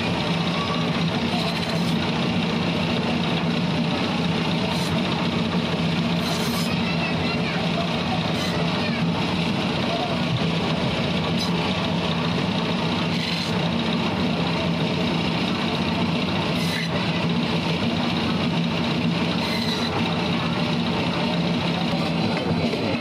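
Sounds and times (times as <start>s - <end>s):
band saw cutting fish: 0.1s - 7.2s, 7.8s - 9.2s, 10.7s - 14.8s, 16.0s - 17.4s, 19.0s - 20.3s.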